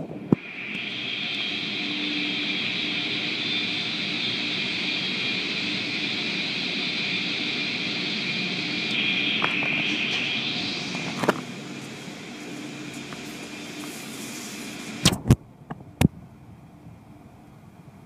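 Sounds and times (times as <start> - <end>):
car wash water spraying: 0.4 - 15.4.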